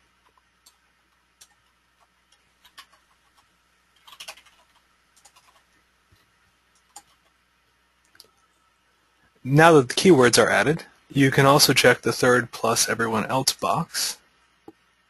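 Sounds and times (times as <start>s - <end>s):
keyboard keystrokes: 4.0s - 5.6s.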